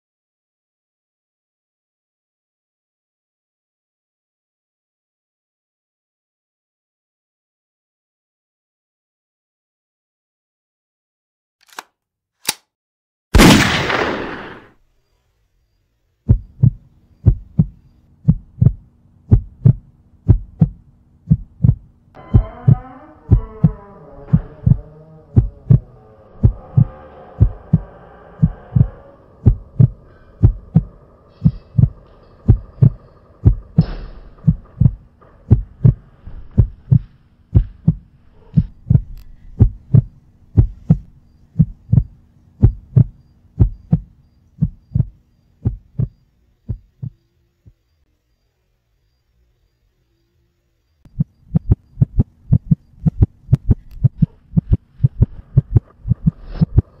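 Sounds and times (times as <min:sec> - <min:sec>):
faint low hum: 0:14.8 - 0:57.0
heartbeat double thump: 0:16.3 - 0:21.9, 0:25.4 - 0:47.2, 0:51.1 - 0:57.0.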